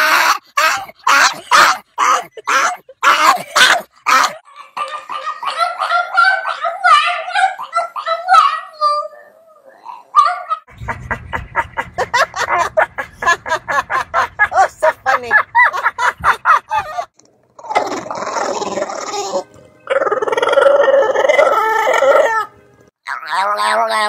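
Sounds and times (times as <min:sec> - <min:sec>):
dog grumbling vocal sounds: 0:17.6 - 0:22.0.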